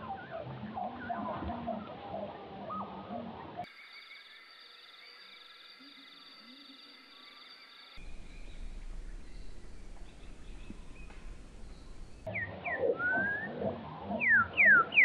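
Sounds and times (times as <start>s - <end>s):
faint outdoor background: 0.0s - 15.0s
bird whistles: 8.2s - 13.6s, 14.2s - 15.0s.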